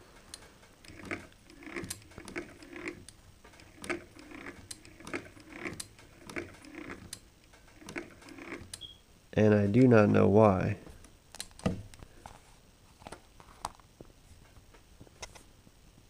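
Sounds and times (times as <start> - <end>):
sewing machine clicking and clunking: 0.2 - 8.9.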